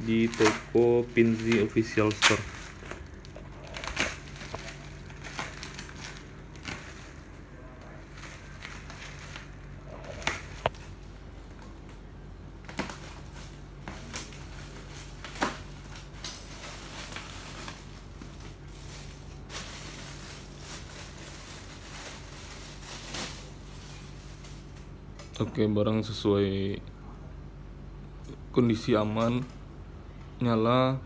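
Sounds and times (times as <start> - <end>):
plastic packaging tearing and rustling: 0.0 - 11.7, 12.6 - 24.9
bubble wrap crackling: 0.0 - 25.0.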